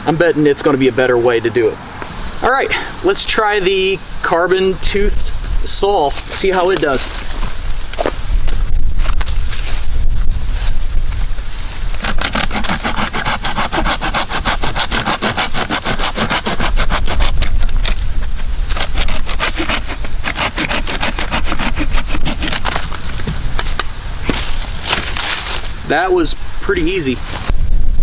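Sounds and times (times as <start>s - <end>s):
hand saw cutting a log: 12.0s - 18.0s, 18.7s - 23.0s.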